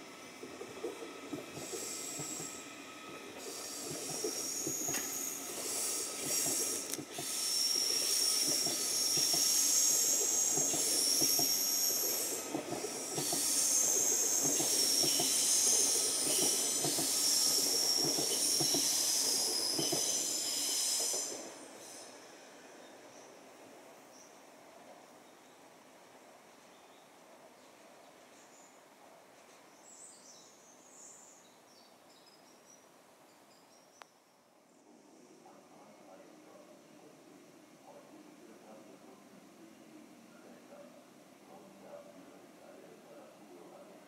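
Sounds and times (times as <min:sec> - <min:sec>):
train wheels clattering: 0:03.4 - 0:20.2
high-pitched wheel squeal: 0:03.5 - 0:12.3.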